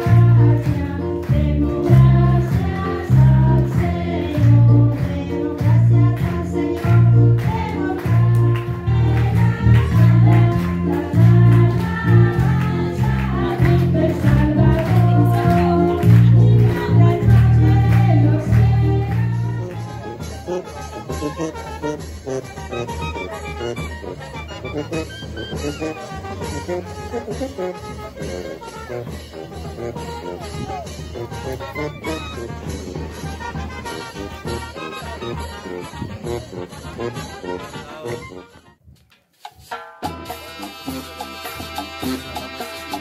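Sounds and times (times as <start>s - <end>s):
voices singing together: 0.0s - 20.2s
steady bass beat: 0.0s - 20.5s.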